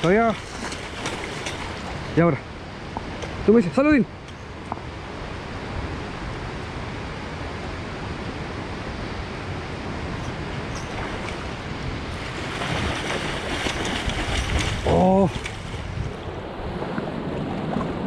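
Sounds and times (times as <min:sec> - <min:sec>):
fish splashing at surface: 0:00.0 - 0:02.0, 0:12.2 - 0:15.9
river whitewater rushing: 0:08.7 - 0:16.8.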